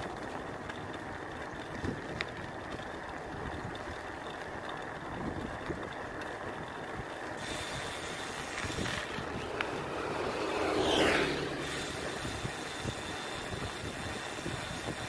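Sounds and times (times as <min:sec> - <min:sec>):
wind and road noise: 0:00.0 - 0:15.0
motorcycle passing: 0:07.7 - 0:14.4.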